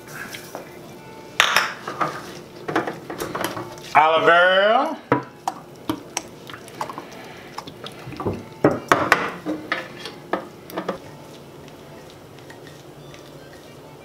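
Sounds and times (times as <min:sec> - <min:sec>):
oil pouring and splashing: 0:05.5 - 0:08.6.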